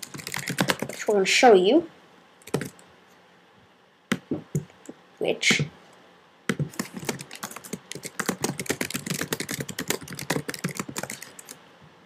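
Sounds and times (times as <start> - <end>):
fast keyboard typing: 0.0 - 1.0, 2.4 - 2.8, 6.5 - 11.6.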